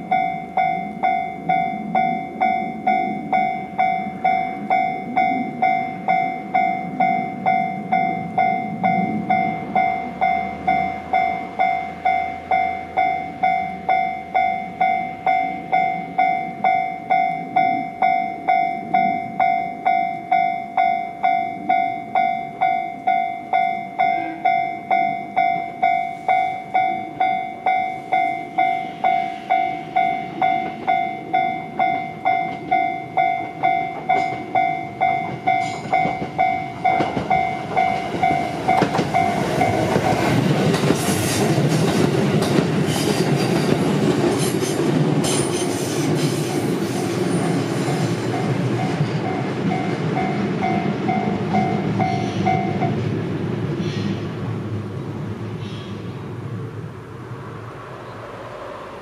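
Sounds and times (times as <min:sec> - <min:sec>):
level crossing warning bell: 0:00.0 - 0:45.8, 0:47.2 - 0:53.0
electric train passing: 0:00.0 - 0:59.0
train wheels clicking: 0:26.2 - 0:53.0.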